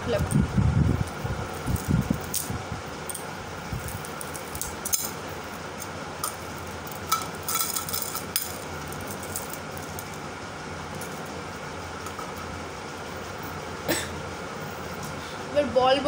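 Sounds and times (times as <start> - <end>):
metal chains clinking: 3.1 - 5.3, 6.2 - 10.2.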